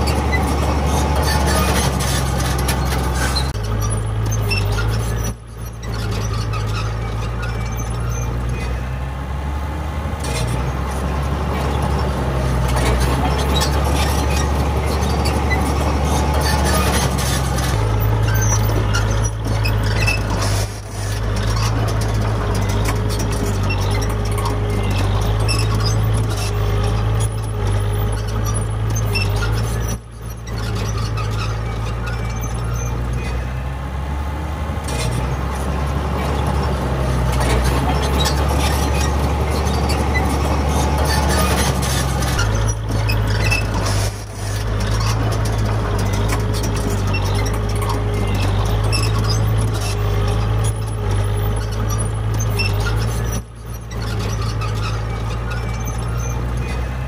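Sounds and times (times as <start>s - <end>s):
heavy diesel machinery drone: 0.0s - 57.0s.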